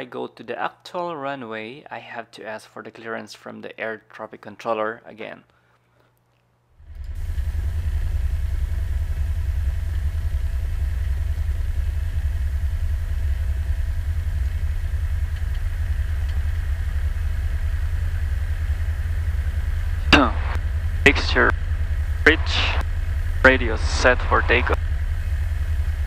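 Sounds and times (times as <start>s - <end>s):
faint steady hum: 5.4s - 26.0s
airplane engine and propeller drone: 6.8s - 26.0s.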